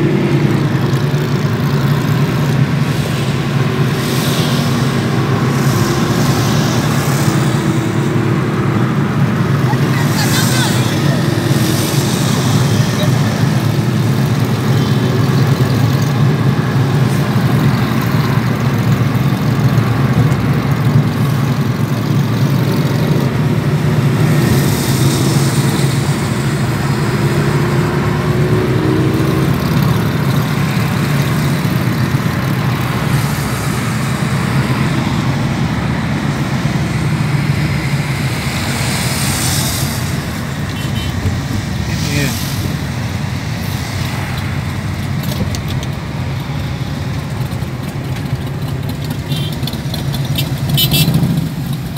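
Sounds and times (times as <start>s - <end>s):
car engine and tyre drone: 0.0s - 51.9s
rising engine note: 23.9s - 40.3s.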